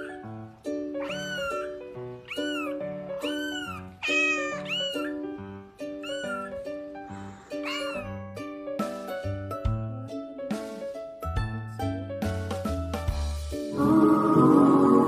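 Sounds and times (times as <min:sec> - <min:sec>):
kitten mewing: 0:00.0 - 0:00.3, 0:01.0 - 0:05.4, 0:06.0 - 0:08.4
light background music: 0:00.0 - 0:15.0.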